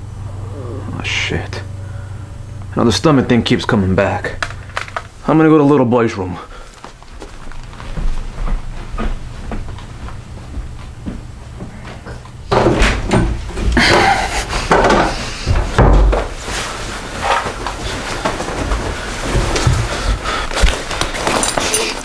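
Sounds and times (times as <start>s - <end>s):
door opening and banging: 12.5s - 16.4s
knocks and thumps: 12.5s - 16.4s.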